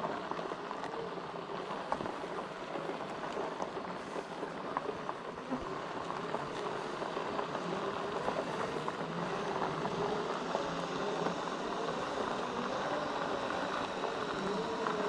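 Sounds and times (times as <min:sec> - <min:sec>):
tyres rolling on grit: 0:00.0 - 0:15.0
electric motor whine: 0:05.6 - 0:15.0.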